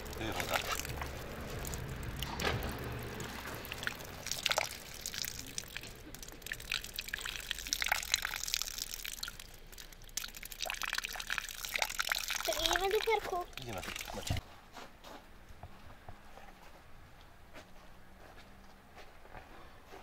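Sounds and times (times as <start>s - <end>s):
faint water trickle: 0.0s - 14.4s
water dripping and splashing: 0.0s - 14.4s.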